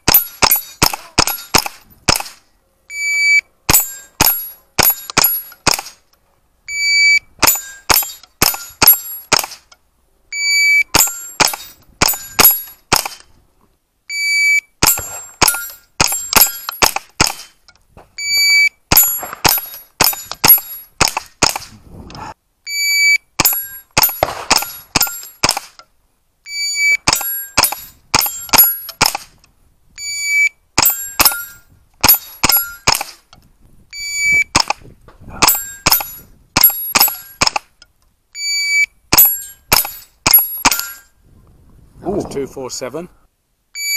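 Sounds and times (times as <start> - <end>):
rifle shots: 0.0 - 2.4, 3.7 - 6.0, 7.4 - 9.6, 10.8 - 13.3, 14.8 - 17.6, 18.9 - 21.8, 23.4 - 25.8, 27.0 - 29.4, 30.8 - 33.2, 34.5 - 34.8, 35.4 - 37.7, 39.1 - 41.0
steel plates ringing: 10.9 - 12.8, 30.8 - 32.9, 35.4 - 37.4, 39.2 - 41.2.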